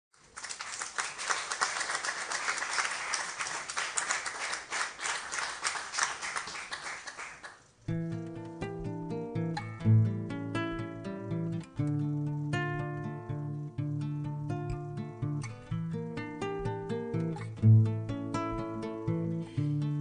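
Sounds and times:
audience applauding: 0.2 - 7.7
acoustic guitar playing: 7.8 - 20.0.

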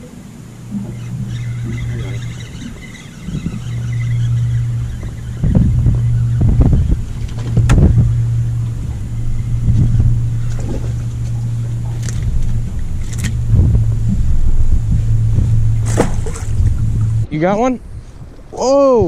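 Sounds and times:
steady low hum: 0.0 - 19.0
wind rumble on microphone: 0.0 - 19.0
sharp clicks and knocks: 5.0 - 8.8.

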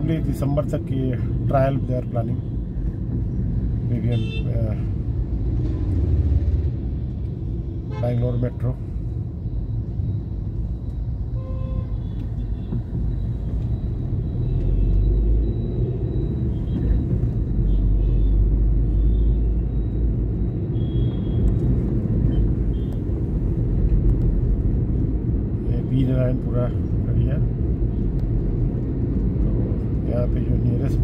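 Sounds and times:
vehicle engine and road noise: 0.0 - 31.0.

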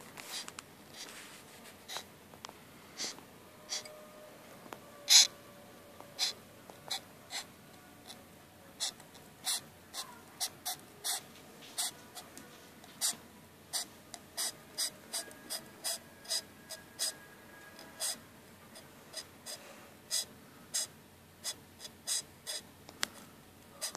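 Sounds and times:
beetle hissing: 3.0 - 3.9, 5.1 - 5.3, 8.8 - 12.0, 13.8 - 17.2.

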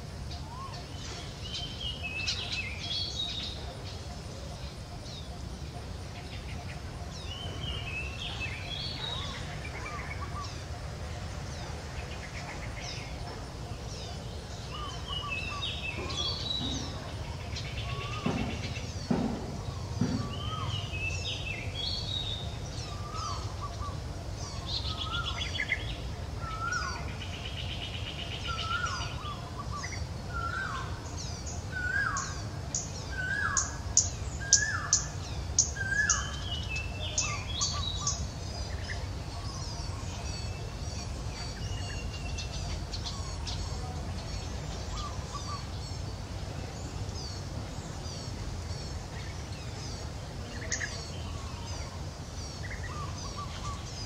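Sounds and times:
birds chirping and calling: 0.0 - 54.0
soft knocks: 18.1 - 20.5.

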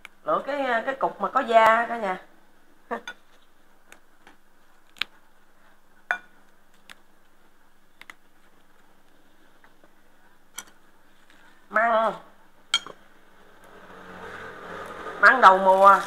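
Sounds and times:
ladle clinking on pot and bowl: 12.7 - 13.0.

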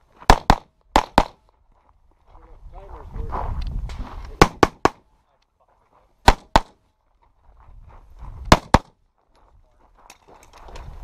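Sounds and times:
pistol shots: 0.3 - 1.4, 4.4 - 5.0, 6.2 - 6.8, 8.5 - 9.0.

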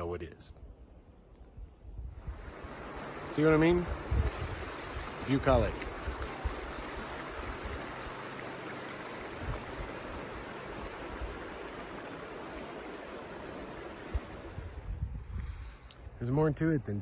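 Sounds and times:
creek running over stones: 2.2 - 14.9.

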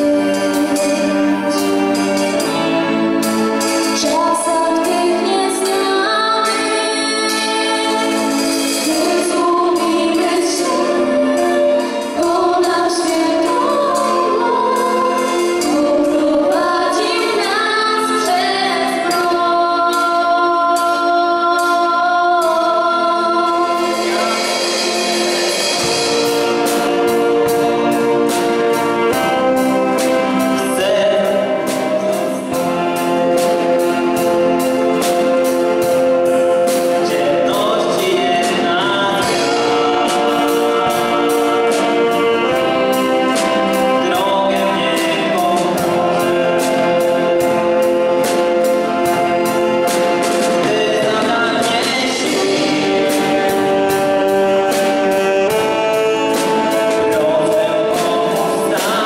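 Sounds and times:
musical accompaniment: 0.0 - 59.0
vocal group singing ballad: 4.0 - 24.8, 50.0 - 59.0.

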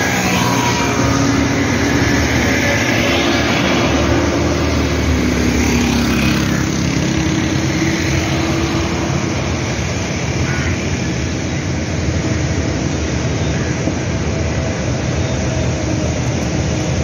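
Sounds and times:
vehicle passing by: 0.0 - 11.8
road traffic passing: 0.0 - 17.0.

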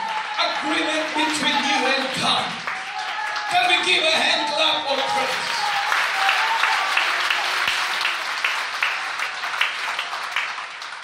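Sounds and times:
crowd clapping hands: 0.0 - 11.0.

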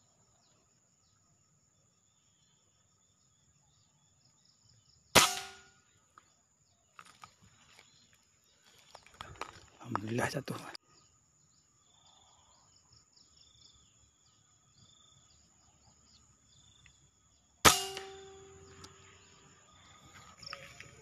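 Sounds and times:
air rifle shot: 5.2 - 5.8, 17.6 - 18.8.

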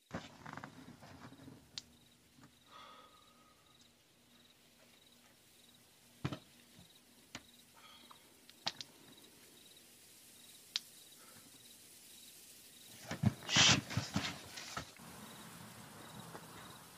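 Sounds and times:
faint sharp clicks: 7.3 - 9.0, 10.7 - 10.9.

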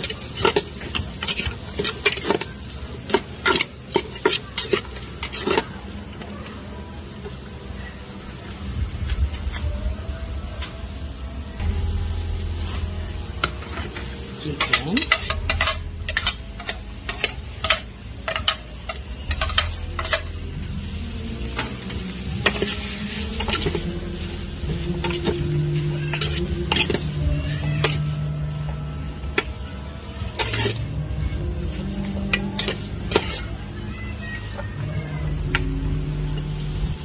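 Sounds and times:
metal spoon scraping a pot: 0.0 - 6.0, 13.4 - 29.5, 30.2 - 31.0, 32.2 - 33.6
frying sizzle: 0.0 - 37.0.

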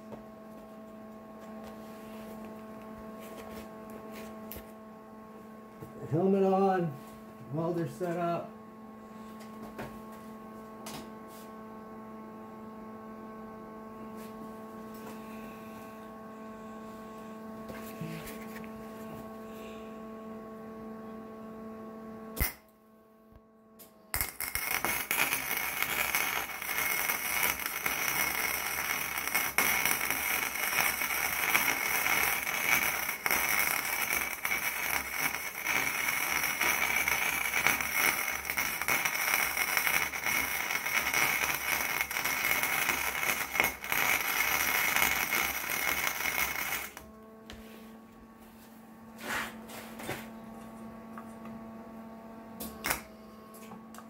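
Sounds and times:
electrical hum: 0.0 - 54.0
welding arc crackling: 22.4 - 22.6, 24.1 - 47.1.

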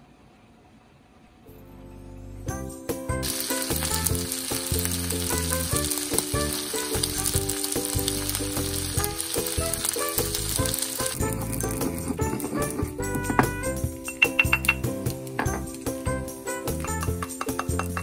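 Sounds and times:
food sizzling in a frying pan: 3.2 - 18.0
background music with low beat: 11.1 - 18.0.

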